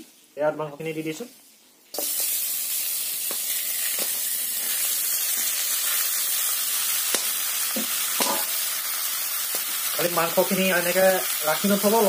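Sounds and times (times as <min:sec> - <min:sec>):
meat sizzling in a pan: 0:00.0 - 0:12.0
meat pieces knocking into pan: 0:07.1 - 0:08.6.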